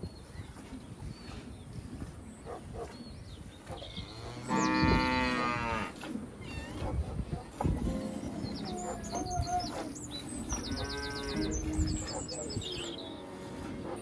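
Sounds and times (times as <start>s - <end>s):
cow mooing: 4.1s - 6.0s, 10.6s - 11.8s, 12.9s - 14.0s.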